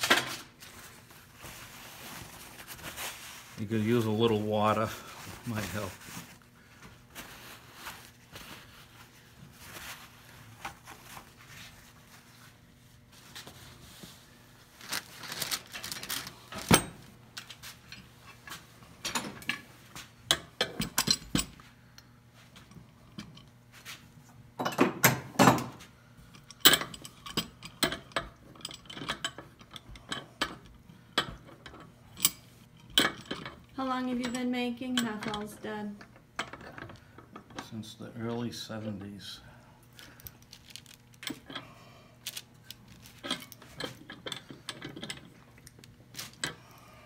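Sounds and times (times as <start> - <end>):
metal clamps clinking and knocking: 26.4 - 35.6, 42.7 - 45.4.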